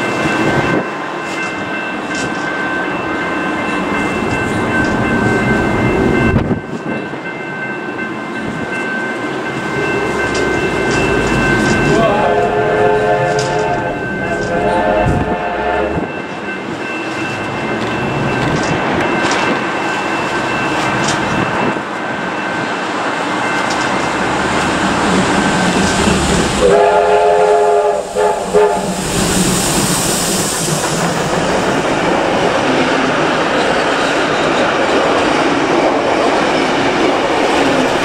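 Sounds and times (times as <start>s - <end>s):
steam train running on rails: 0.0s - 38.0s
steam train whistle: 11.2s - 16.1s, 26.4s - 29.9s
high hiss: 27.8s - 31.4s.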